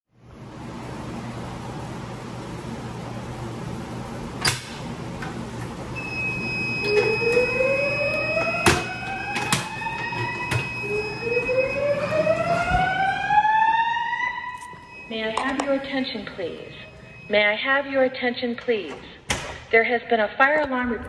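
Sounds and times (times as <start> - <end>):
fire alarm whoop tone: 6.0 - 18.0
steady high beep: 14.6 - 18.2.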